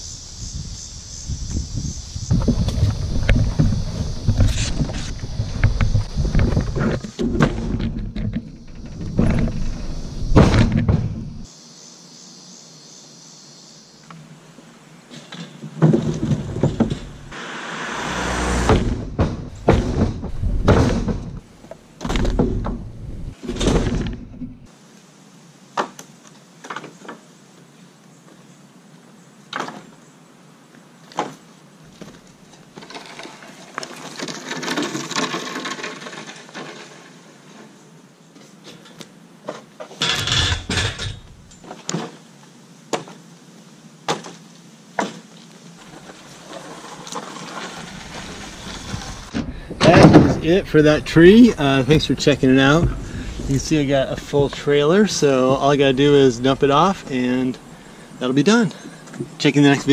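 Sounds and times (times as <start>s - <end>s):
logs thudding onto wooden deck: 2.3s - 11.4s, 15.7s - 17.3s, 18.1s - 21.4s, 22.0s - 24.6s, 47.8s - 50.6s
rustling: 44.3s - 58.0s.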